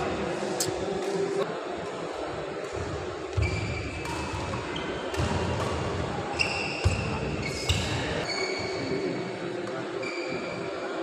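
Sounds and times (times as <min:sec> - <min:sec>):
shoes squeaking on court: 0:06.4 - 0:09.1.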